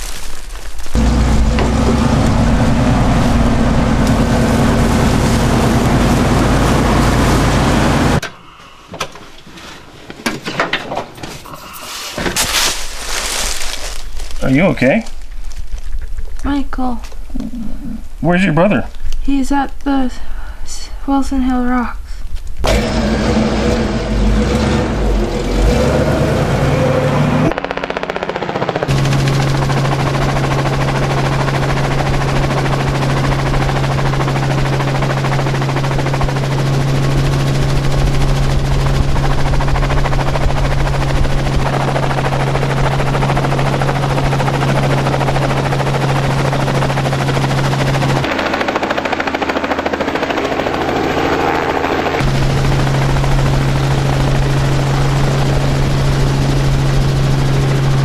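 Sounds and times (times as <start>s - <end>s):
helicopter rotor beating: 0.9s - 8.2s, 12.8s - 15.3s, 22.6s - 58.0s
vehicle engine running: 0.9s - 8.3s, 22.6s - 58.0s.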